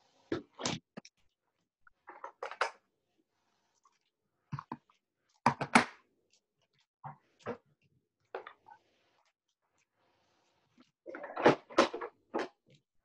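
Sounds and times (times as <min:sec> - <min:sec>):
clicks taps and rustles of supplies: 0:01.9 - 0:02.9, 0:04.5 - 0:08.7, 0:11.0 - 0:12.9.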